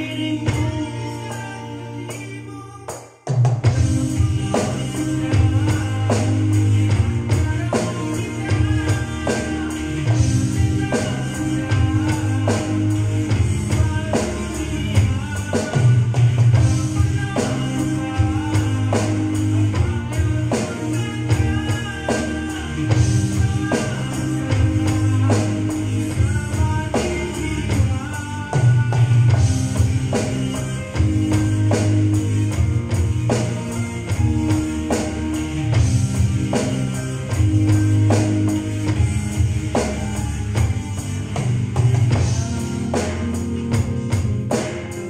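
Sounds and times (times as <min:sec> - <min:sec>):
electronic drum kit playing: 0:00.0 - 0:45.0
recorded pop song with singing: 0:00.0 - 0:45.0.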